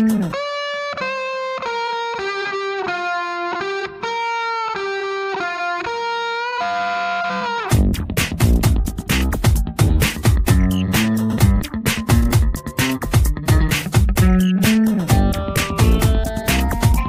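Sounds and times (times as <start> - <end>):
solo electric guitar melody: 0.0 - 7.8, 10.8 - 17.0
drum beat: 7.7 - 17.0.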